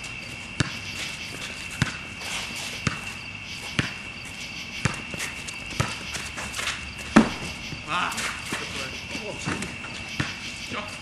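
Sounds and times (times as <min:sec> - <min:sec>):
players' footsteps: 0:00.0 - 0:11.0
basketball bouncing on court: 0:00.6 - 0:00.9, 0:01.7 - 0:02.1, 0:02.8 - 0:03.1, 0:03.7 - 0:04.1, 0:04.8 - 0:06.3, 0:07.1 - 0:07.9.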